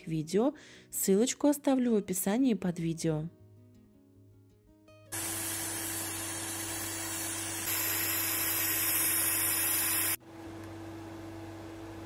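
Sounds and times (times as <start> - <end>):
steam pressure hissing from valve: 5.2 - 10.2.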